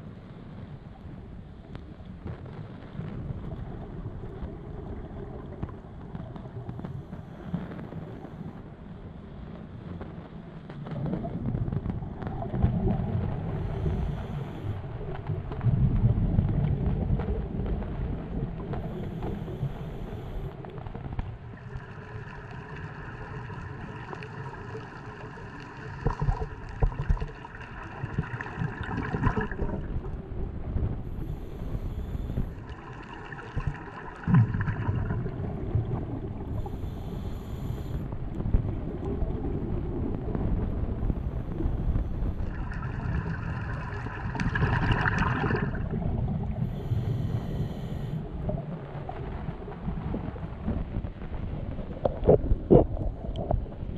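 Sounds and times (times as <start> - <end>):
droning hum: 0.0 - 53.9
underwater bubbles rumble: 0.0 - 53.9
regulator breaths hissing: 46.6 - 48.2.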